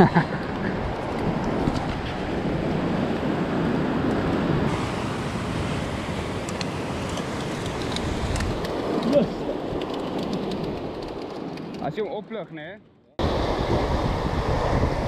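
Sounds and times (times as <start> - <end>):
wind on microphone: 0.0 - 11.8, 13.2 - 15.0
surf washing against rocks: 0.6 - 11.2.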